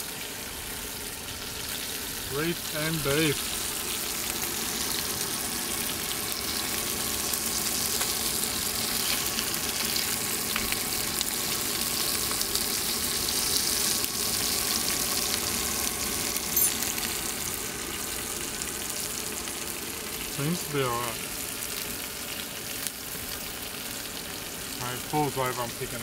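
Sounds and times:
fish sizzling in a pan: 0:00.0 - 0:26.0
brief clink: 0:16.6 - 0:16.9.

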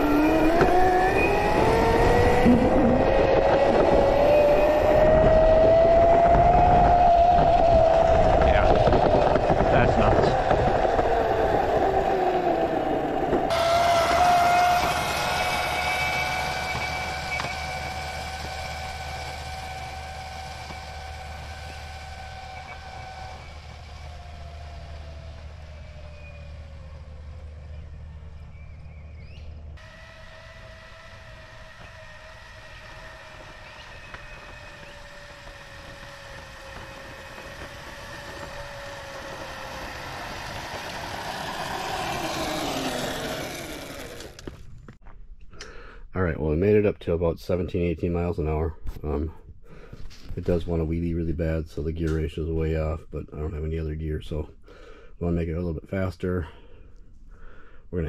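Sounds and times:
electric motor whining: 0:00.0 - 0:44.9.

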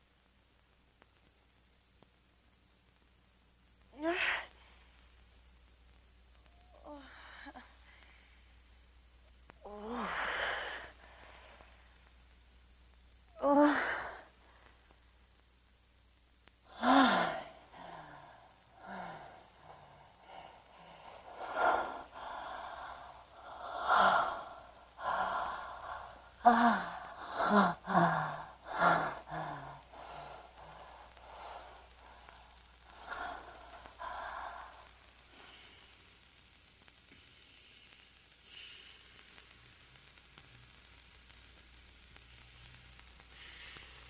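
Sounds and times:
faint hiss: 0:00.0 - 0:44.0
person sighing and gasping: 0:09.6 - 0:10.9, 0:16.7 - 0:20.4, 0:21.4 - 0:32.2.

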